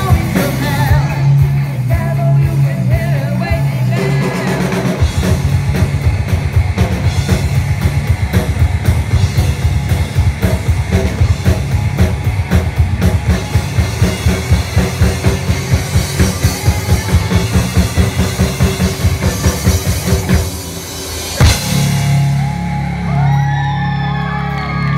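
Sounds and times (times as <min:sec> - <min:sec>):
drum kit fast beat: 0:00.0 - 0:23.5
live rock band playing: 0:00.0 - 0:24.9
crowd whooping and cheering: 0:15.8 - 0:20.1, 0:21.6 - 0:24.9.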